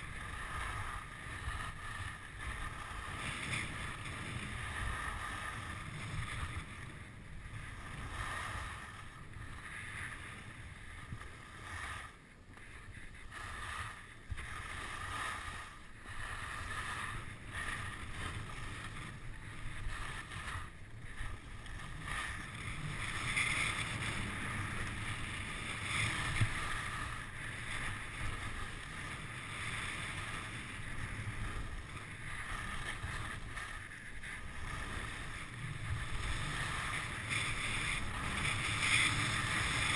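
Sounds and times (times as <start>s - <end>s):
skis hissing over snow: 0.0s - 39.9s.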